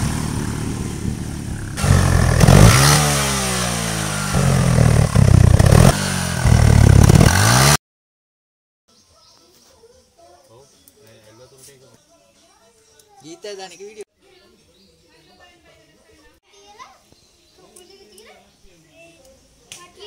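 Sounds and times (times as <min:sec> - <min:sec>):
exhaust popping and crackling: 0:00.0 - 0:07.8
motorcycle engine revving: 0:00.0 - 0:07.8.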